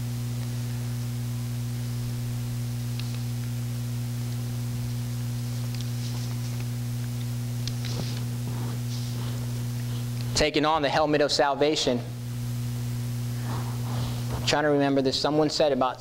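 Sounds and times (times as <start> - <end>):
low electrical hum: 0.0 - 16.0
paper rustling: 5.6 - 6.8, 7.7 - 10.1.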